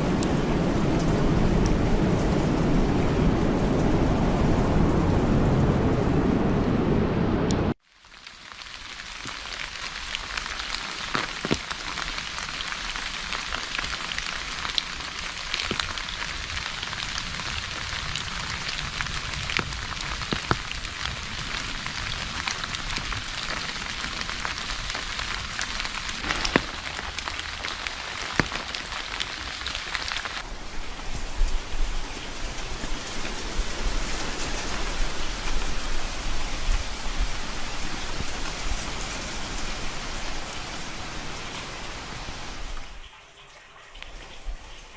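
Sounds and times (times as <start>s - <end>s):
raindrops ticking: 0.0s - 4.0s, 8.0s - 44.9s
rain on a hard surface: 0.0s - 44.9s.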